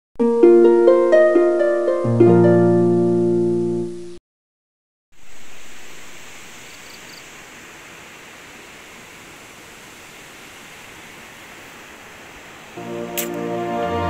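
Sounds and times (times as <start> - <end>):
outdoor ambient hiss: 5.1 - 14.0.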